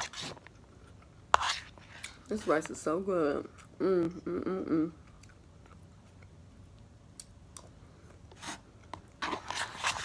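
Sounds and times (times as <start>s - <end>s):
plastic spoon scraping foam container: 0.0s - 0.5s, 1.3s - 2.0s, 9.2s - 10.0s.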